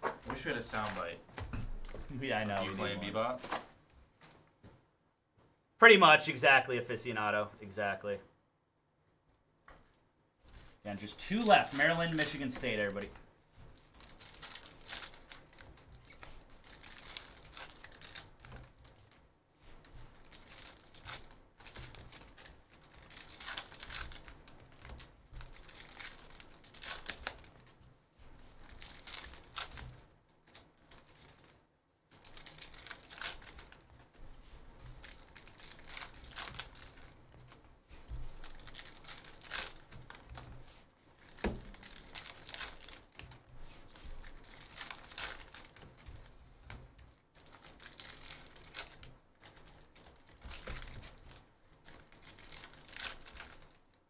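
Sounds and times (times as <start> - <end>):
card pack wrappers crinkling and tearing: 0.1 - 1.2, 1.9 - 3.7, 10.6 - 13.1, 13.7 - 19.2, 19.8 - 27.7, 28.4 - 34.2, 34.8 - 40.5, 41.1 - 46.3, 47.1 - 54.0.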